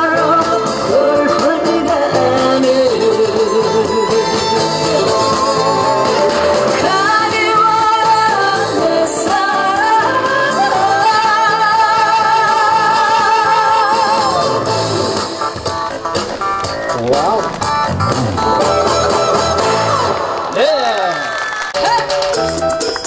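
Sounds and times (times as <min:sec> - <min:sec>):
woman singing into a microphone: 0:00.0 - 0:05.8, 0:06.7 - 0:14.6.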